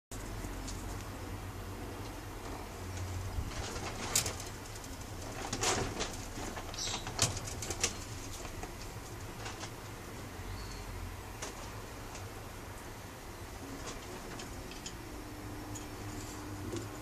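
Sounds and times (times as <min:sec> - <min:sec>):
bird scratchy calls: 0:06.6 - 0:08.2.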